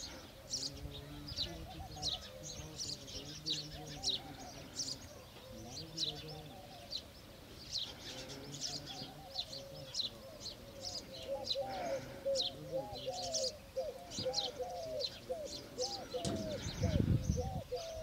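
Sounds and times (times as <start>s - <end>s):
small birds chirping: 0.0s - 18.0s
lower-pitched bird call: 7.8s - 18.0s.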